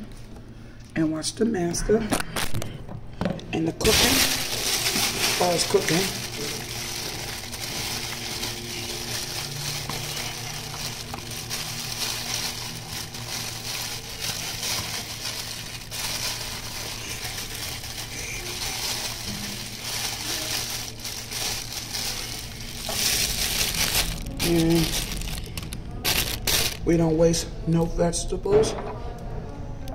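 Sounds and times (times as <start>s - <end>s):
microwave oven humming: 1.4s - 29.9s
plastic bag crinkling: 3.8s - 27.0s.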